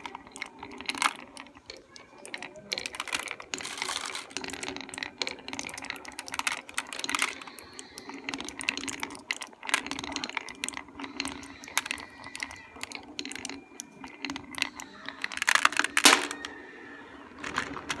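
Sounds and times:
marbles clattering into toy truck: 0:00.0 - 0:18.0
marbles clicking on deflectors: 0:00.0 - 0:18.0
marbles rolling down chute: 0:00.0 - 0:18.0.

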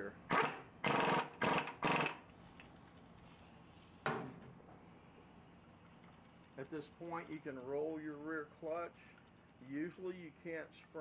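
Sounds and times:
impact wrench rattling bursts: 0:00.3 - 0:02.2.

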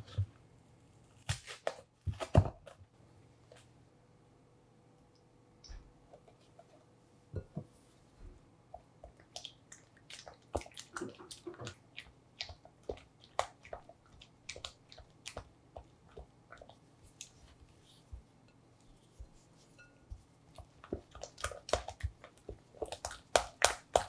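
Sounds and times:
spatula stirring cream: 0:08.7 - 0:24.0.

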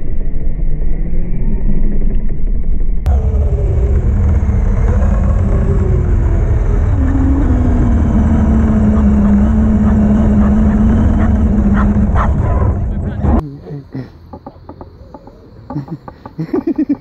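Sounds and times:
heavy rumble: 0:00.0 - 0:17.0
rc truck motor whine: 0:03.1 - 0:13.1.

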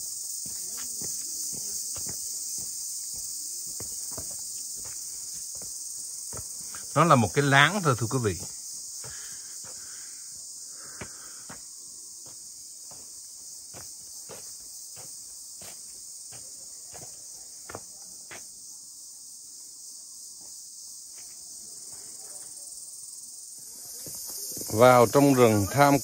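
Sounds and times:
footsteps on earth floor: 0:00.0 - 0:18.6, 0:23.6 - 0:25.1
chorus of forest insects: 0:00.0 - 0:26.0.

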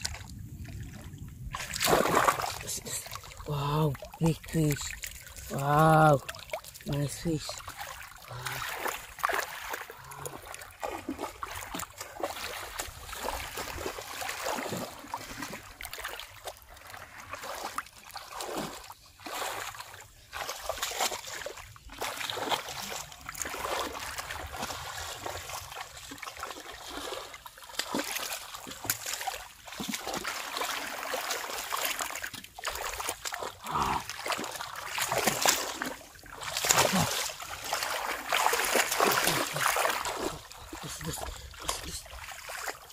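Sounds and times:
hands splashing in muddy water: 0:00.0 - 0:42.9.

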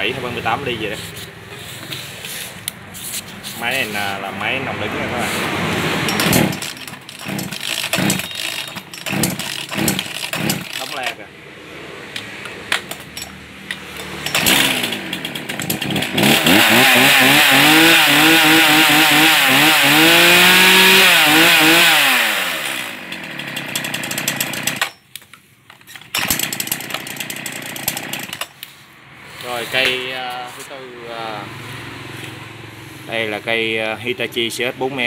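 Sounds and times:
chainsaw engine idling and revving: 0:03.9 - 0:25.0, 0:26.1 - 0:28.7, 0:31.3 - 0:33.2.

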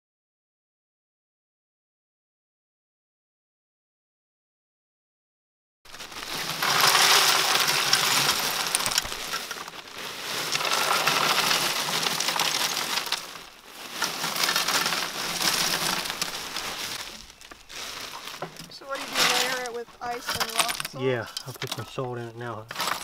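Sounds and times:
plastic bag crinkling: 0:05.9 - 0:22.0, 0:22.7 - 0:23.0
ice rattling into wooden tub: 0:05.9 - 0:23.0.

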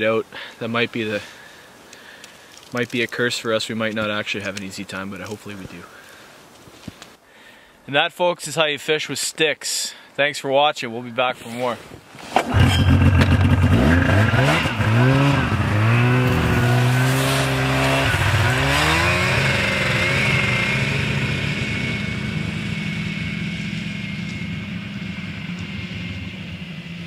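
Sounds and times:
snowmobile engine revving: 0:12.4 - 0:27.0.

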